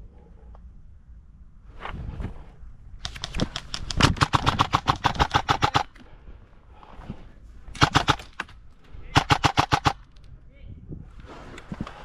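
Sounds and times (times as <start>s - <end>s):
airsoft rifle firing full-auto: 4.2s - 5.9s, 7.8s - 8.4s, 9.1s - 10.0s.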